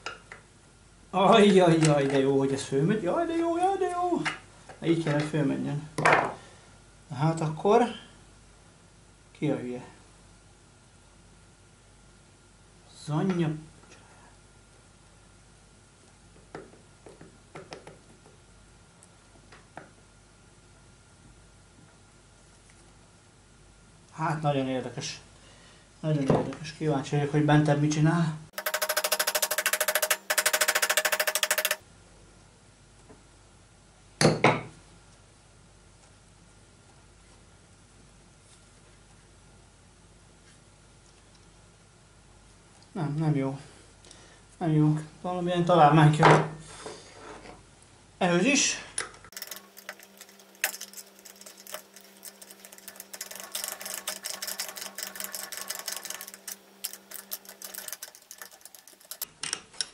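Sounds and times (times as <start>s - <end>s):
rapid metallic clicking clatter: 28.6s - 31.8s, 49.3s - 59.3s.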